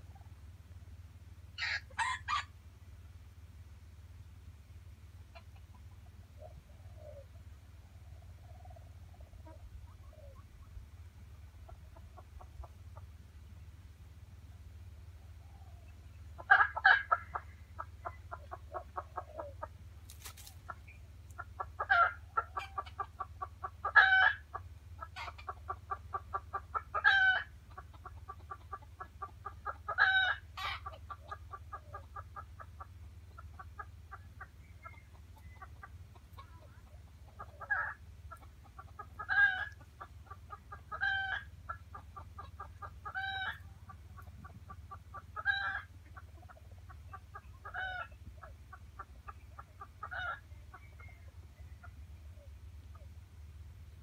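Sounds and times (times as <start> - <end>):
loud hen call: 1.6 - 2.5, 21.6 - 27.5, 29.6 - 32.8, 33.8 - 44.0, 44.9 - 45.9, 47.1 - 48.2
hen clucking: 1.6 - 2.6, 5.2 - 13.6, 14.5 - 54.0.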